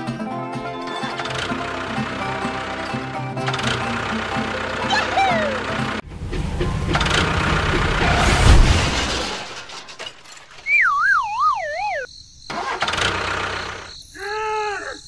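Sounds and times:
cartoon rumbling noise: 4.6s - 9.5s, 10.7s - 12.9s
falling wobbling whistle tone: 10.6s - 12.1s.

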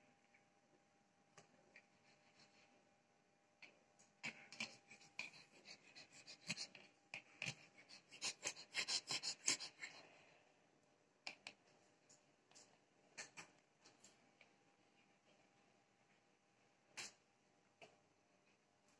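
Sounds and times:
small dog panting: 4.3s - 10.1s.

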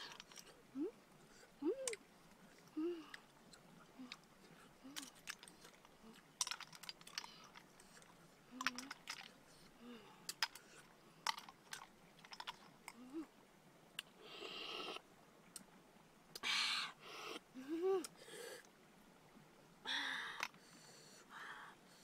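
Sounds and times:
low humming: 0.0s - 5.4s
snail shells clicking: 4.9s - 9.3s, 10.3s - 13.0s.

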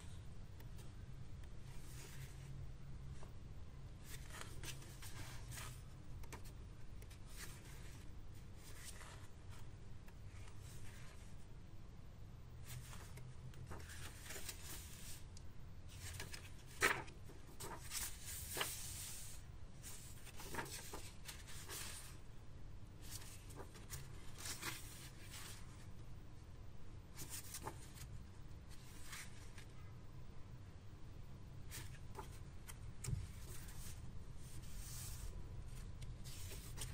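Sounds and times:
faint low hum: 0.0s - 36.9s
paper pages turning: 4.0s - 9.6s, 12.6s - 15.2s, 15.9s - 22.2s, 23.0s - 25.8s, 27.2s - 28.1s, 31.7s - 36.9s.

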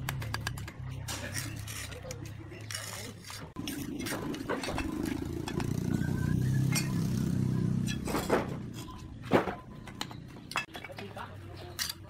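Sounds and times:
steel trowels clinking on brick: 0.4s - 5.7s, 10.5s - 12.0s
vehicle engine running: 3.7s - 9.1s.

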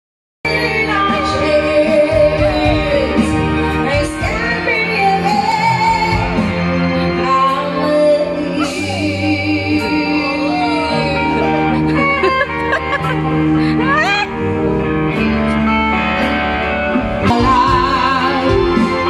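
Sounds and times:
woman singing: 0.5s - 11.8s, 17.2s - 19.0s
live band playing rock ballad: 0.5s - 19.0s.

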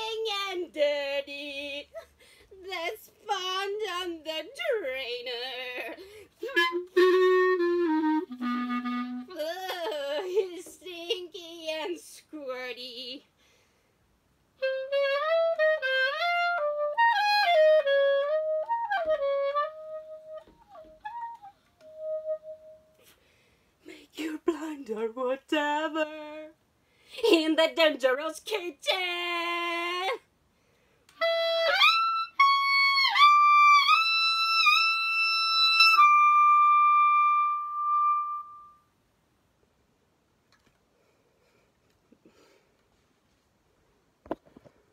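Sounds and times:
clarinet melody: 5.8s - 10.4s, 14.6s - 23.1s, 31.1s - 38.9s.

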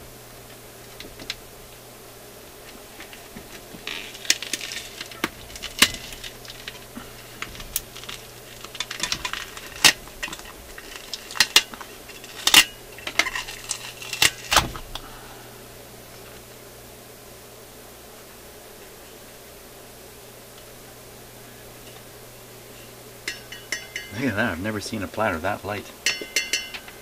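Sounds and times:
metal scraping: 3.9s - 14.7s.

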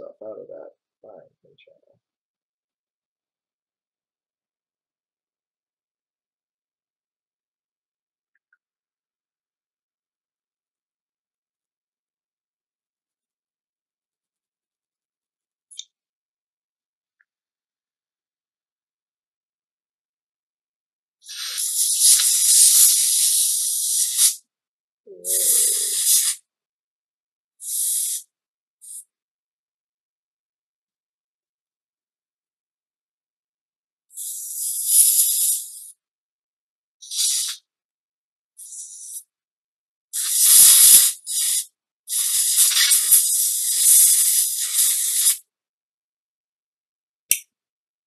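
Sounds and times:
compressed air spraying: 21.3s - 24.4s, 25.4s - 26.4s, 27.6s - 28.2s, 34.2s - 35.9s, 37.1s - 37.6s, 40.2s - 45.4s.

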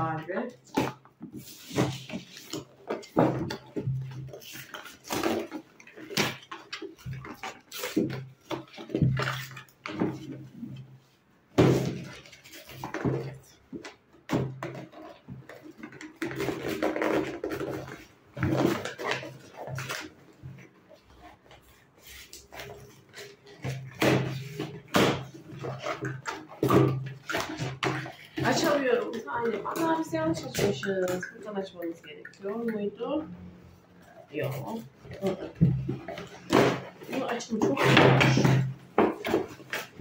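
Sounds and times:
packaging rustling and tearing: 11.8s - 31.3s.

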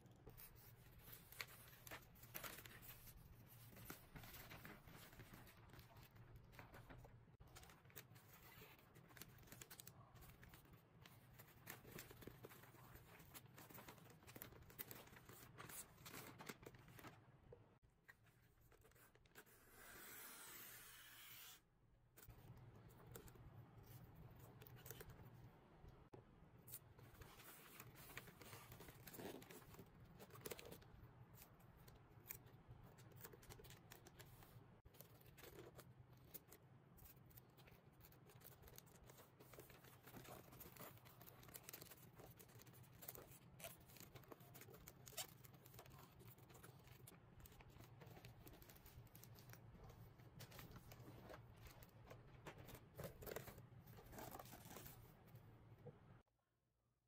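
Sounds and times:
wrapping paper rustling and crinkling: 0.2s - 17.3s, 26.7s - 55.2s.

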